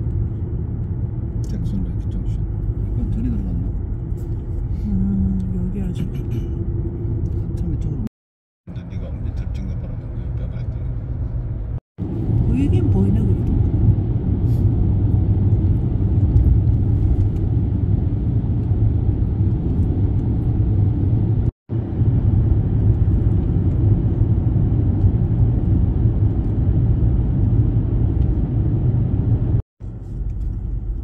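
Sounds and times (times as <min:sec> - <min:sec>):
car driving rumble: 0:00.0 - 0:08.1, 0:08.7 - 0:31.0.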